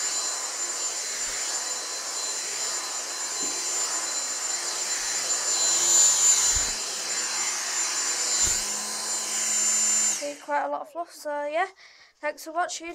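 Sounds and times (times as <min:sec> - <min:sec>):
vacuum cleaner motor whine: 0:00.0 - 0:10.5.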